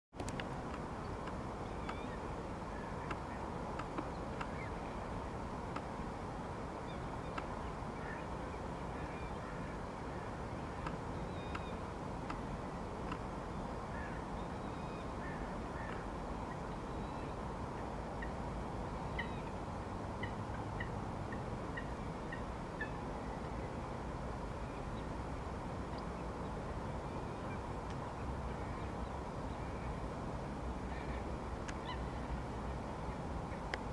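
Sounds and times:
faint clicks: 0.2s - 2.1s, 3.0s - 4.6s, 5.7s - 5.9s, 7.3s - 7.6s, 10.8s - 12.4s, 27.8s - 28.0s
low background noise: 0.2s - 33.9s
faint bird calls: 1.6s - 4.9s, 6.8s - 12.4s, 13.9s - 17.4s, 30.8s - 32.4s.

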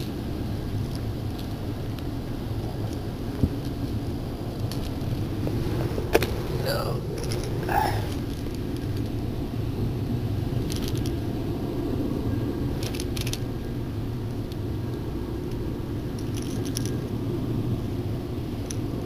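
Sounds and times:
metallic clicks and jingles: 16.2s - 17.1s.

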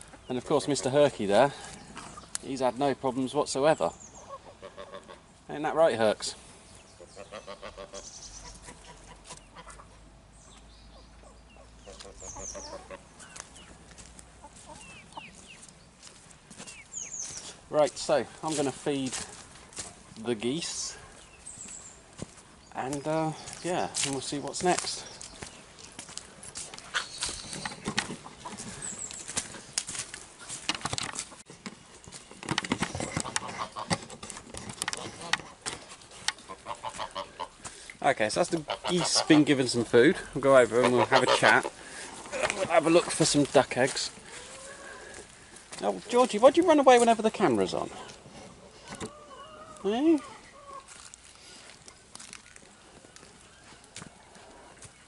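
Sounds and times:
chickens clucking: 0.0s - 55.0s
footsteps: 11.9s - 49.1s, 49.8s - 55.0s
knocks and rustles: 27.5s - 28.7s, 30.5s - 36.4s
chickens and geese flapping wings: 32.2s - 35.8s, 36.4s - 37.6s.

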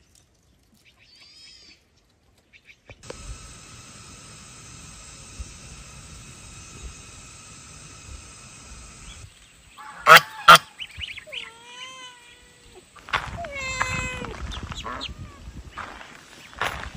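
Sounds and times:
steady high drone: 3.0s - 10.8s
goose honking: 9.8s - 10.8s
goose gliding calls: 9.8s - 11.5s.

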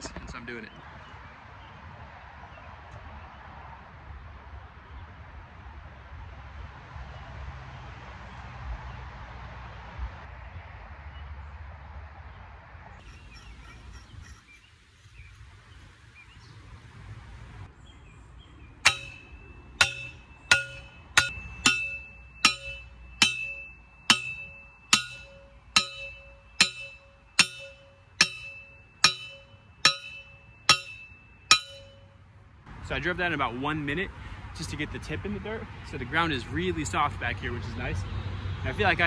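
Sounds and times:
post driver clanging on metal: 18.8s - 32.1s.

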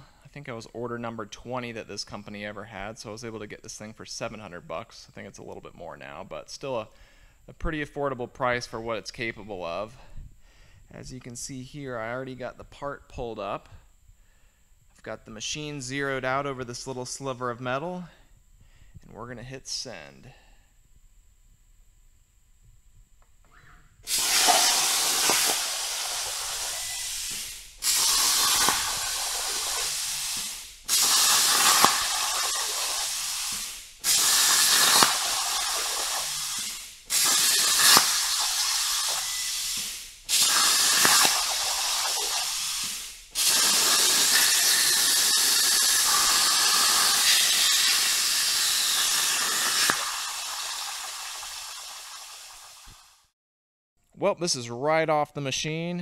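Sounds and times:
plasma torch cutting metal: 24.1s - 53.2s.

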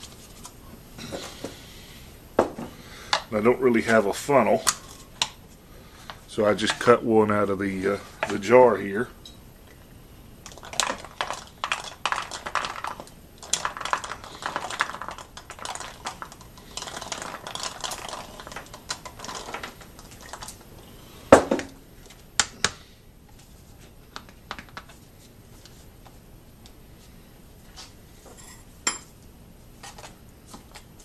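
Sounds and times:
pellets pattering into plastic bottle: 10.5s - 20.6s.

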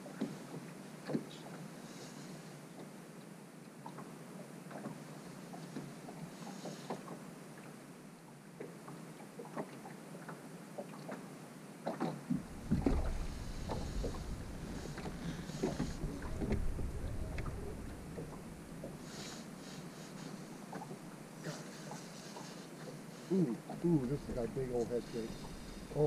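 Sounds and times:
waves lapping against boat hull: 0.0s - 7.8s, 8.4s - 26.0s
low rumble: 12.4s - 19.1s, 24.0s - 26.0s.

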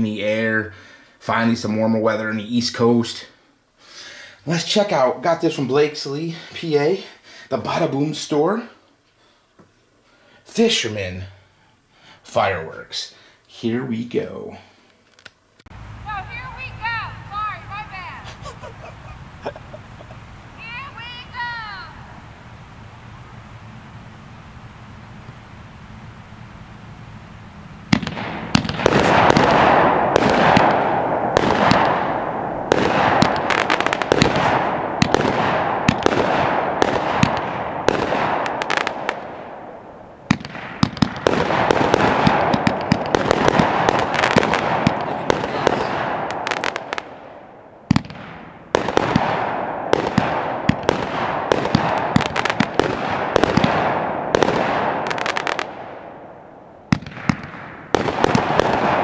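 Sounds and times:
dense firework crackle: 15.2s - 59.0s
firework launch thumps and bursts: 27.9s - 39.6s, 40.3s - 47.3s, 47.9s - 56.0s, 56.9s - 59.0s.

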